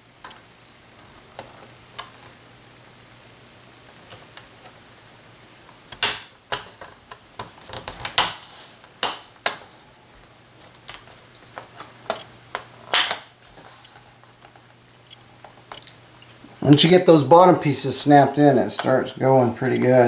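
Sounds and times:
plastic clips snapping: 12.1s - 13.3s.

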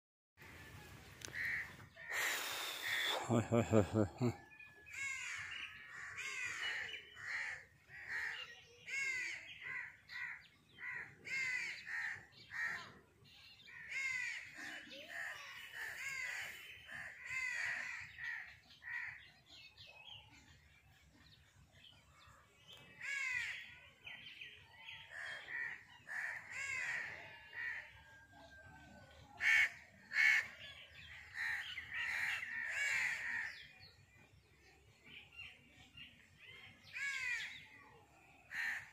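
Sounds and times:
crows cawing: 1.2s - 1.8s, 4.9s - 12.9s, 13.7s - 19.3s, 23.0s - 23.7s, 24.8s - 28.0s, 29.4s - 33.6s, 36.9s - 37.6s, 38.5s - 38.9s.

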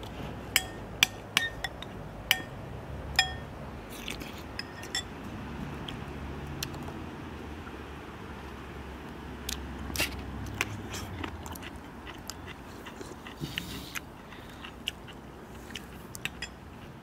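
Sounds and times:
metal spoons clicking on bowls: 0.6s - 3.5s, 4.5s - 5.1s, 16.2s - 16.6s
people chewing and biting: 3.9s - 4.6s, 8.5s - 17.0s.

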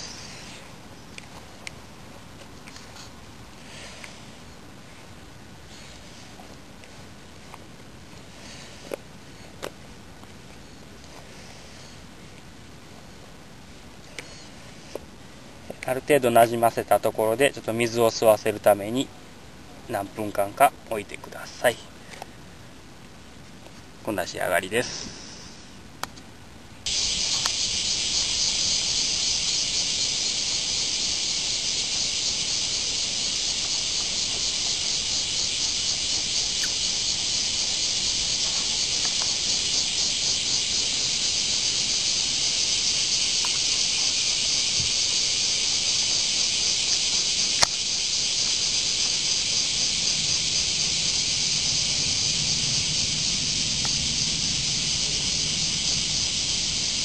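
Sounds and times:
cicadas buzzing: 0.0s - 5.0s, 14.0s - 15.0s, 15.6s - 22.4s, 24.0s - 25.8s, 26.8s - 57.0s.

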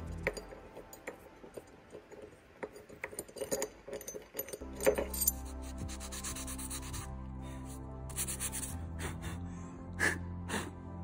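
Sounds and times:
light metallic clinks of bolt: 0.0s - 5.6s
background music: 0.0s - 11.0s.

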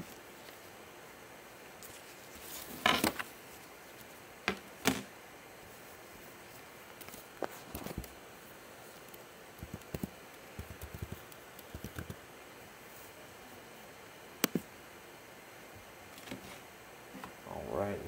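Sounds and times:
steady low hiss: 0.0s - 18.0s.

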